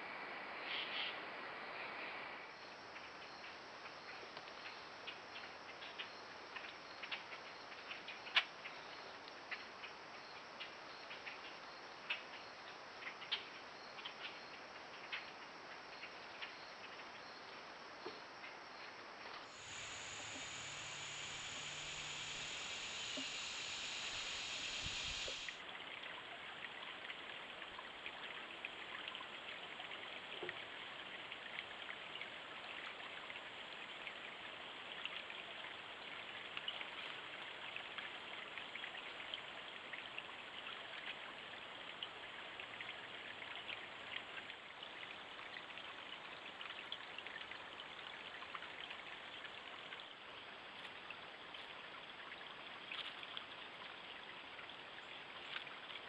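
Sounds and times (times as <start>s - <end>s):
faint ticks: 19.3s - 25.6s
creek trickling: 19.5s - 56.0s.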